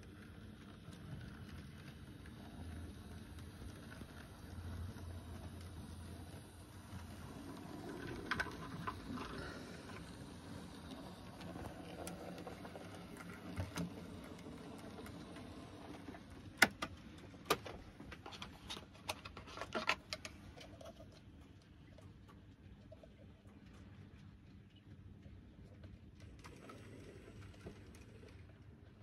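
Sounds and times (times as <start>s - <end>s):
model train running on track: 0.0s - 16.2s.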